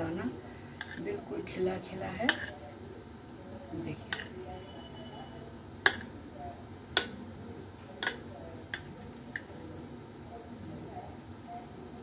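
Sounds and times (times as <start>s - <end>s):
metal spoon clinking on pot: 5.8s - 6.1s, 8.0s - 8.9s.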